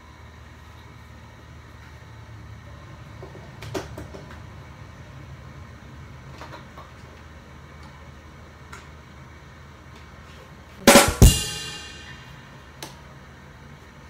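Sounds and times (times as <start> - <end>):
loud drum hits: 10.9 - 12.6
crash cymbal ringing: 10.9 - 12.7.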